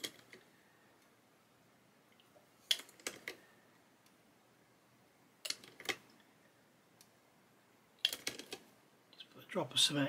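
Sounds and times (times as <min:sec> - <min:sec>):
plastic parts clicking: 0:02.7 - 0:03.4, 0:05.4 - 0:06.1, 0:08.0 - 0:08.7.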